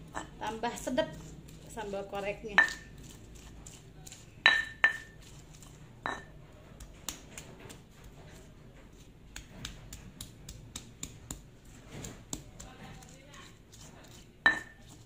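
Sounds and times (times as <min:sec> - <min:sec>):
pestle knocking in stone mortar: 0:02.5 - 0:03.8, 0:04.5 - 0:05.2, 0:06.1 - 0:07.8, 0:09.3 - 0:13.1, 0:14.4 - 0:15.0.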